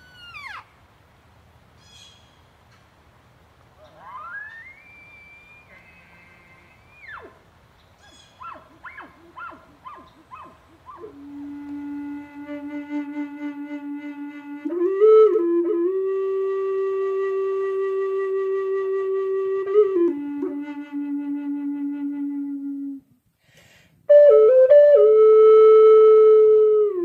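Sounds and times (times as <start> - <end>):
solo flute melody: 4.1 - 7.3, 8.6 - 23.2, 24.1 - 27.0.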